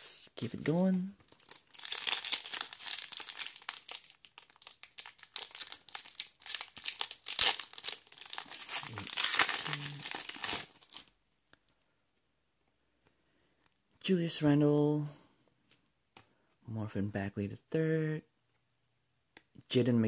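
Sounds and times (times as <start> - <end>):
foil wrapper tearing and crinkling: 1.3 - 11.1.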